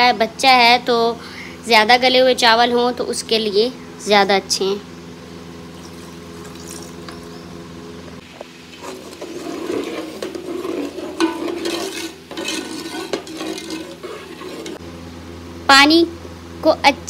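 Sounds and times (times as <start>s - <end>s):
liquid sloshing in pot: 5.7s - 7.3s, 8.6s - 14.8s
metal spoon scraping pot: 8.7s - 14.8s.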